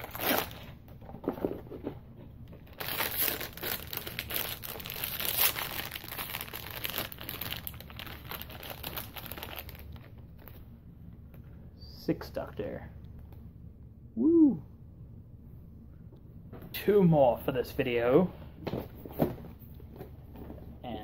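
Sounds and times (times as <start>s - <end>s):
foil bag crinkling and tearing: 0.0s - 0.7s, 2.6s - 10.5s.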